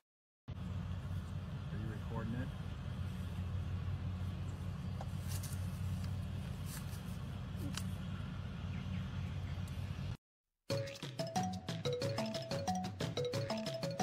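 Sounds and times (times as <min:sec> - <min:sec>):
low mechanical hum: 0:00.5 - 0:10.2.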